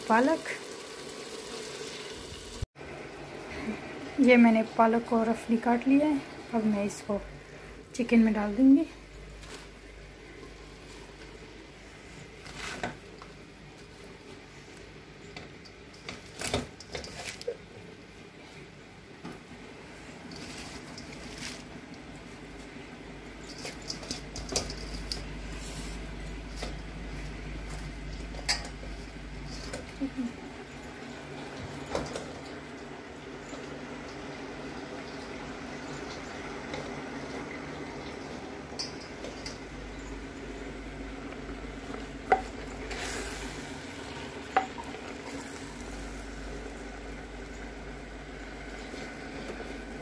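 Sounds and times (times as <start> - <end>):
soft sizzle: 0.0 - 16.2, 32.5 - 50.0.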